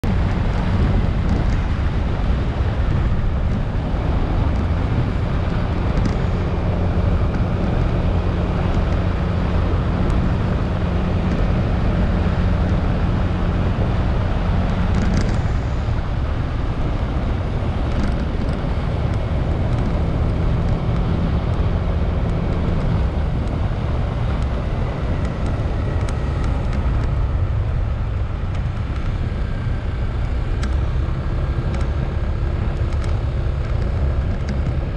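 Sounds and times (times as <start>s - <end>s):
motorcycle engine hum: 0.0s - 34.9s
wind noise on microphone: 0.0s - 34.9s.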